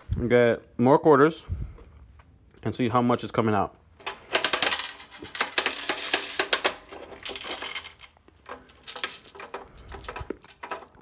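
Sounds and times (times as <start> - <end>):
coins jingling and dropping: 4.3 - 11.0.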